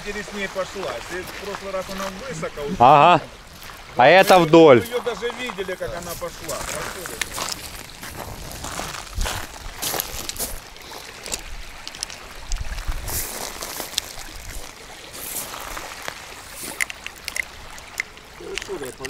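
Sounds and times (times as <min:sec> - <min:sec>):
small waves lapping on pebbles: 0:00.0 - 0:19.0
wind on microphone: 0:05.9 - 0:10.7, 0:11.4 - 0:14.7.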